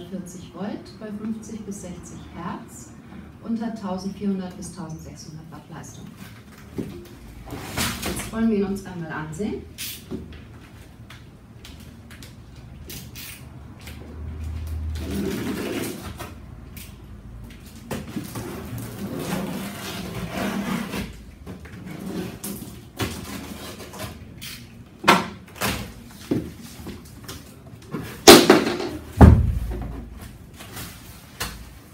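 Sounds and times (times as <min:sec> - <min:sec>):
cardboard scraping and rustling: 0:18.0 - 0:24.2.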